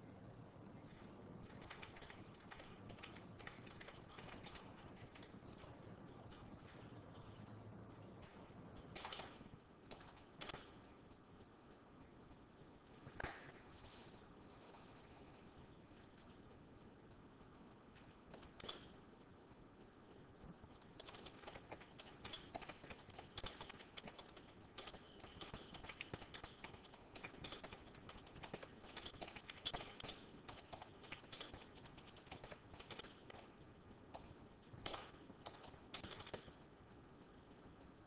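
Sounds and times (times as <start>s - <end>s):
typing on computer keyboard: 1.4s - 7.4s, 8.2s - 10.8s, 18.3s - 18.9s, 20.8s - 33.5s, 34.1s - 36.6s.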